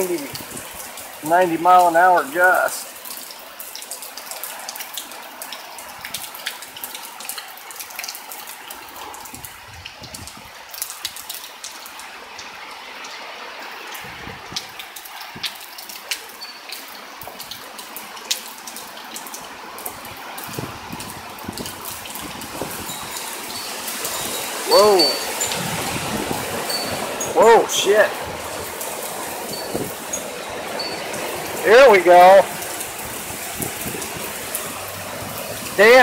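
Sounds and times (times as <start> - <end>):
strong wind gusts: 0.0 - 0.9, 9.1 - 10.6, 13.9 - 15.6, 19.8 - 36.0
heavy rain pouring: 0.0 - 36.0
raindrops ticking on surfaces: 0.0 - 36.0.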